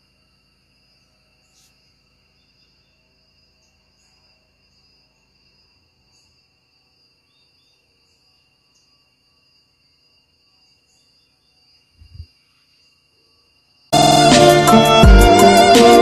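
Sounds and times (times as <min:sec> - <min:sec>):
crickets trilling: 0:00.0 - 0:14.0
faint chirps: 0:00.9 - 0:06.6.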